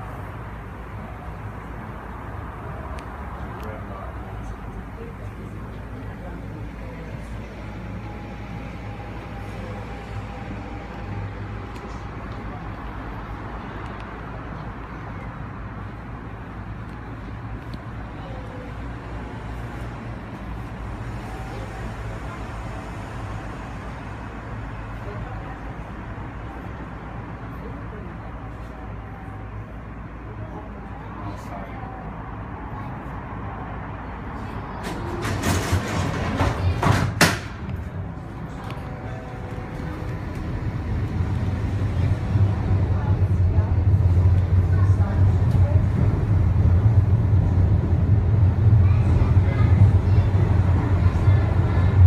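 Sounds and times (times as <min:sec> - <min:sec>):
suspension railway car running: 0:00.0 - 0:52.0
sliding doors hissing and rattling: 0:34.8 - 0:38.0.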